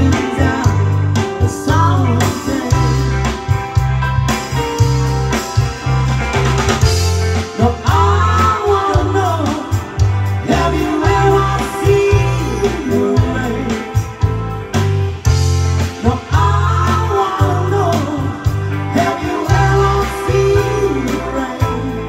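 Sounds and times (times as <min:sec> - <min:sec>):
women singing: 0:00.0 - 0:03.2, 0:07.6 - 0:09.8, 0:10.4 - 0:14.0, 0:16.0 - 0:22.0
bass guitar: 0:00.0 - 0:22.0
drum kit: 0:00.0 - 0:22.0
electric guitar: 0:00.0 - 0:22.0
keyboard: 0:00.0 - 0:22.0.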